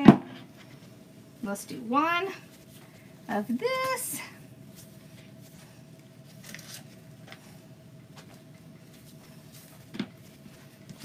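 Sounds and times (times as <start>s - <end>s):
faint steady hum: 0.0s - 11.0s
ribbon rustling: 2.4s - 11.0s.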